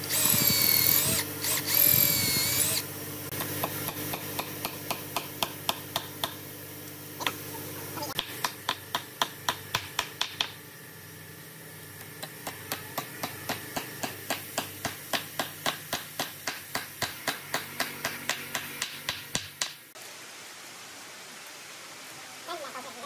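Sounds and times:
faint steady hum: 0.0s - 23.0s
tool tapping wood: 8.2s - 10.6s, 12.0s - 19.8s.

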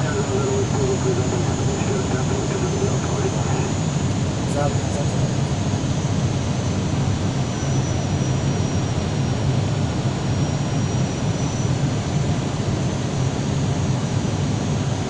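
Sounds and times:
faint high whine: 0.0s - 5.7s
airliner engines roaring in cabin: 0.0s - 15.0s.

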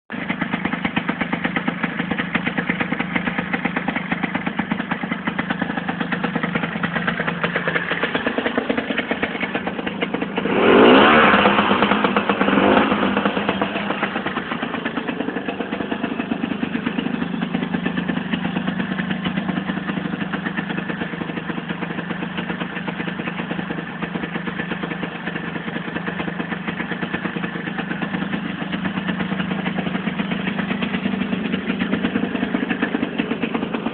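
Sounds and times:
scooter engine idling and revving: 0.1s - 33.9s.

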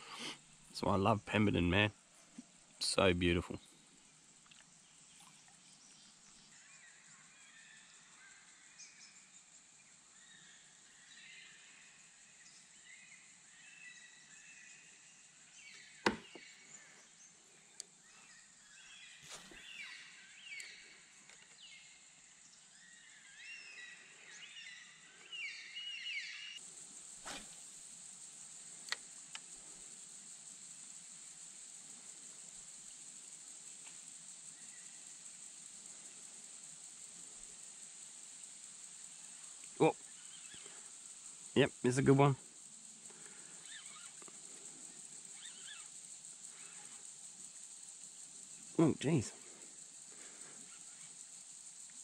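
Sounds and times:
steady high hiss: 0.0s - 52.0s
faint clicks: 4.4s - 5.6s, 28.8s - 29.5s
sharp knock: 16.0s - 16.4s.

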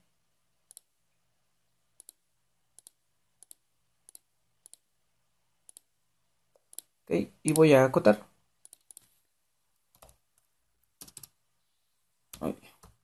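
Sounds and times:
computer mouse clicks: 0.7s - 0.9s, 2.0s - 2.2s, 2.8s - 4.9s, 5.7s - 5.9s, 6.5s - 6.9s, 8.6s - 9.1s, 9.9s - 11.4s.

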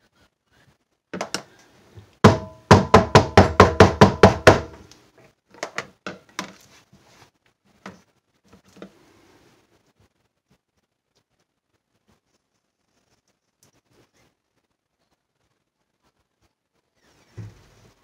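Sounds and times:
mold knocking on countertop: 2.2s - 4.8s.

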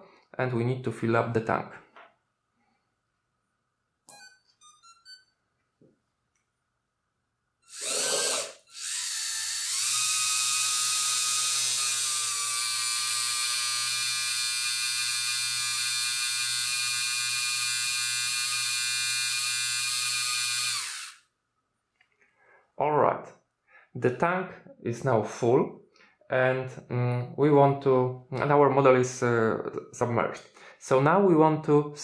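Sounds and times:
electric water pump whining: 7.7s - 21.2s.

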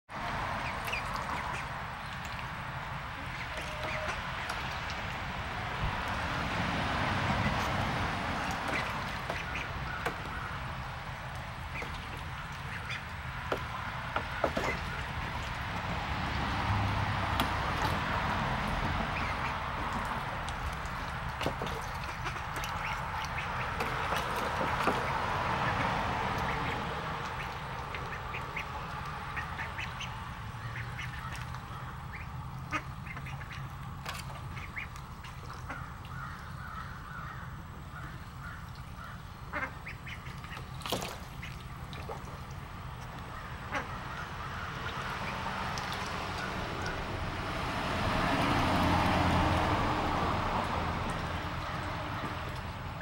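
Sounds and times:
water splashing: 0.1s - 53.0s
ducklings calling: 0.4s - 5.2s, 7.1s - 47.3s
sharp splashes or knocks: 5.9s - 30.0s, 40.1s - 42.7s.

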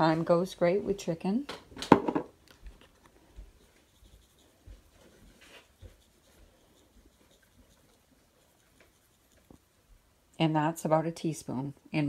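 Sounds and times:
faint rustling and handling: 2.4s - 10.1s.

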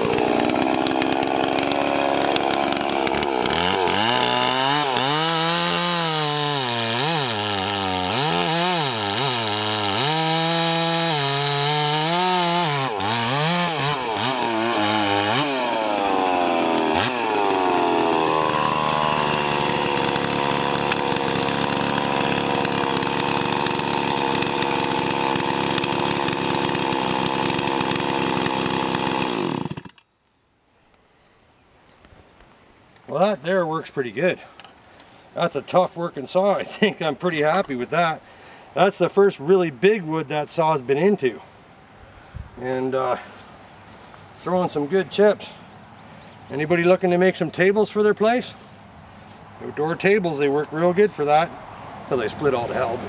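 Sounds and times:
chainsaw idling: 0.0s - 30.0s
chainsaw cutting log: 0.0s - 30.1s.

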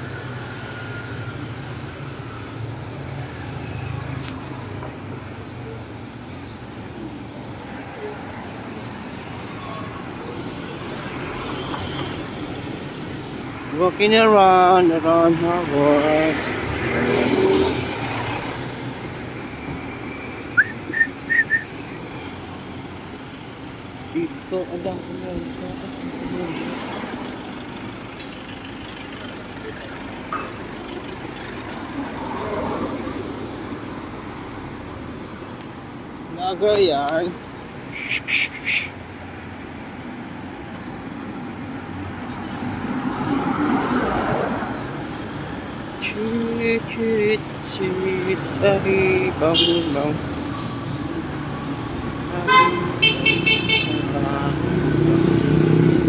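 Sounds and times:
car approaching: 0.0s - 37.9s, 39.0s - 56.0s
city street traffic: 0.0s - 56.0s
short high whistle-like chirps: 20.5s - 21.7s.

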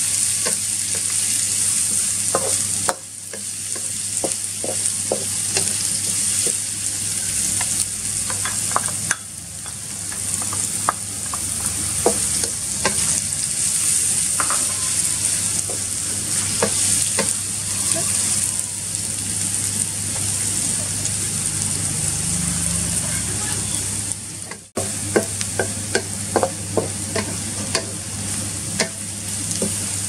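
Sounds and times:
food sizzling in hot oil: 0.0s - 30.0s
wooden spatula scraping wok: 10.1s - 18.6s.

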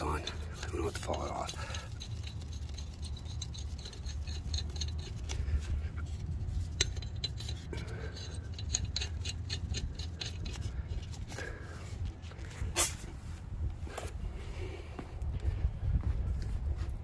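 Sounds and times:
lug nuts clicking and scraping: 0.0s - 13.3s
steady low hum: 0.0s - 17.0s.

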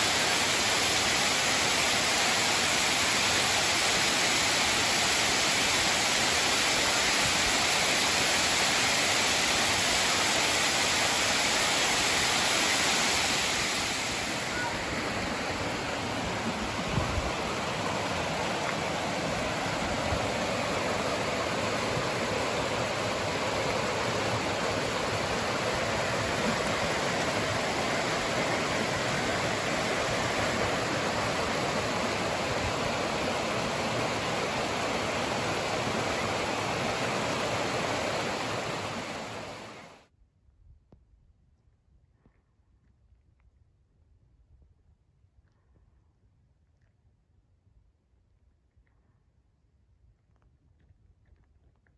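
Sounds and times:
creek water rushing over rocks: 0.0s - 40.0s.

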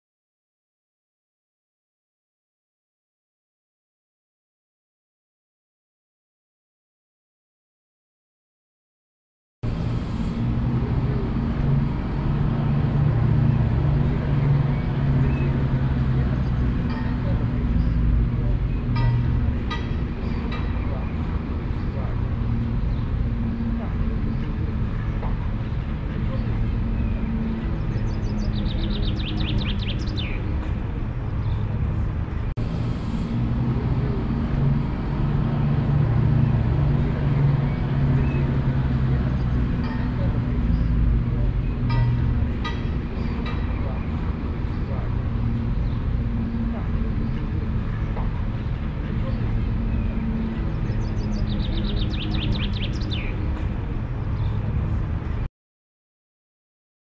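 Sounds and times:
low mechanical hum: 9.6s - 55.5s
low outdoor rumble: 9.6s - 55.5s
songbird trilling: 27.8s - 30.4s, 50.9s - 53.3s.

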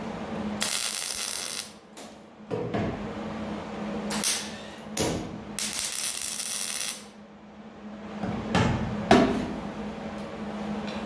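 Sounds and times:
welder low hum: 0.0s - 1.9s, 3.6s - 8.0s
welder crackling: 0.6s - 1.8s, 5.6s - 7.1s.

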